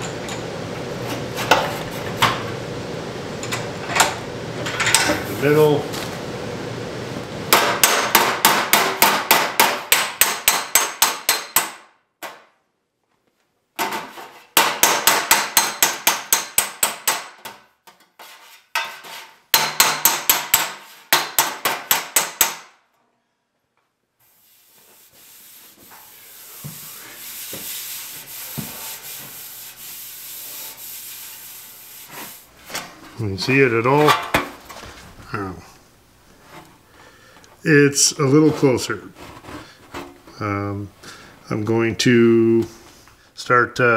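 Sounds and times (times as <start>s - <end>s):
hand rubbing across metal: 24.2s - 32.7s.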